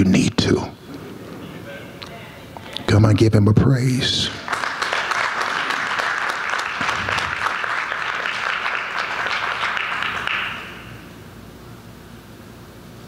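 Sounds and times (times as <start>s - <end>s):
crowd applauding: 4.3s - 11.0s.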